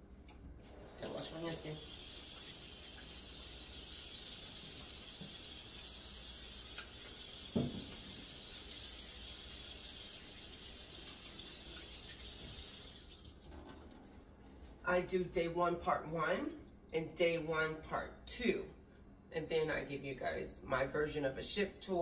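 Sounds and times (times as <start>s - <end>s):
tap running: 4.6s - 5.6s, 6.6s - 8.4s.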